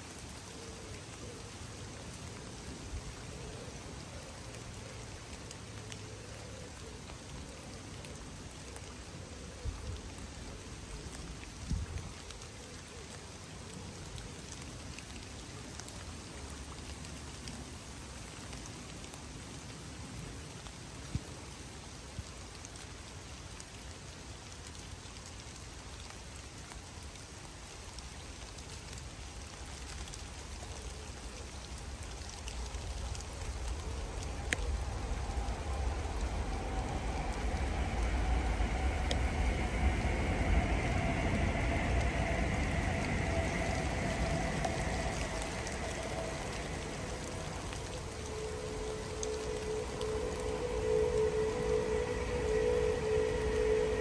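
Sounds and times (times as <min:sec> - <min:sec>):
rain falling on river and foliage: 0:00.0 - 0:54.0
low rumble with faint hum: 0:32.2 - 0:54.0.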